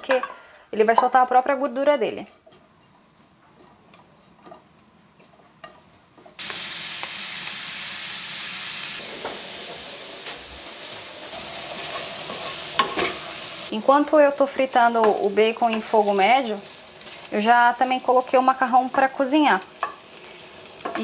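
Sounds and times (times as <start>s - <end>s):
bacon sizzling: 6.4s - 21.0s.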